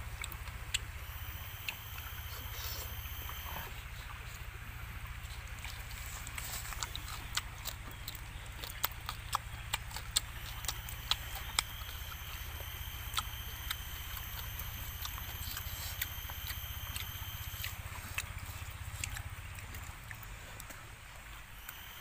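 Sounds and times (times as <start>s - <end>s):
low hum: 0.0s - 22.0s
high-pitched drone: 1.0s - 3.8s, 10.3s - 17.8s
bones crunching while chewing: 5.2s - 22.0s.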